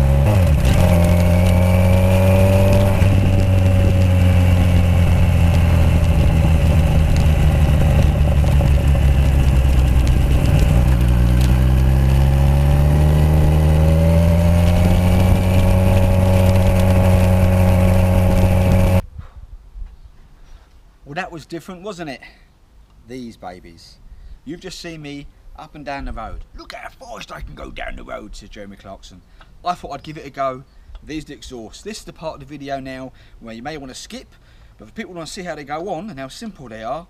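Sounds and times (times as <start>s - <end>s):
motorcycle engine accelerating: 0.0s - 19.0s.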